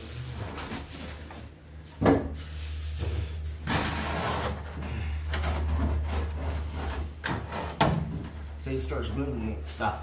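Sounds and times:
metal exhaust scraping: 2.6s - 9.9s.

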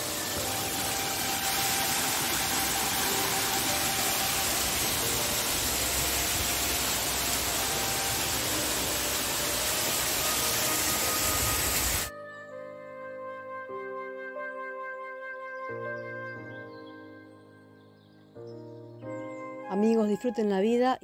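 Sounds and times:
waterfall rushing: 0.0s - 12.1s.

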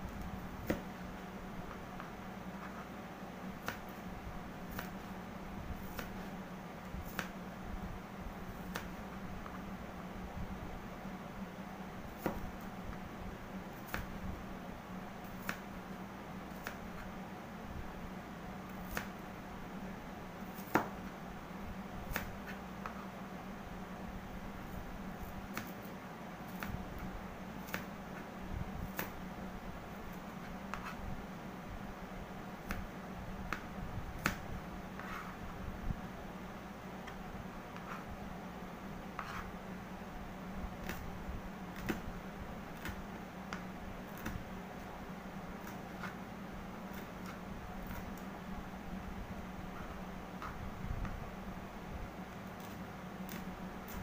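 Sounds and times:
steady low hum: 0.0s - 54.0s
knife chopping on cutting board: 0.6s - 0.9s, 12.2s - 12.4s, 20.6s - 21.0s, 30.7s - 31.0s, 35.0s - 35.3s, 39.2s - 39.5s, 42.8s - 44.4s.

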